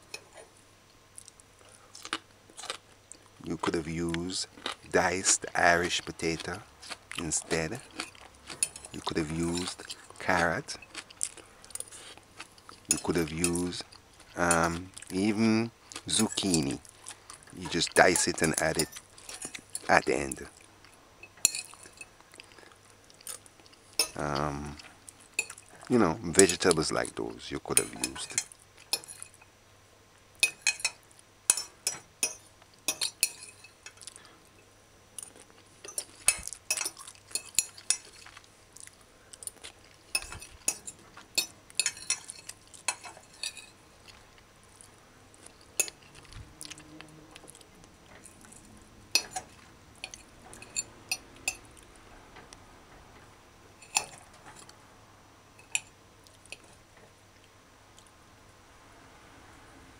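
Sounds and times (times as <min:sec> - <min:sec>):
fork clinking on a plate: 0:27.8 - 0:29.4, 0:30.4 - 0:34.0, 0:35.8 - 0:38.3, 0:40.2 - 0:43.8, 0:49.2 - 0:51.7, 0:53.8 - 0:54.7.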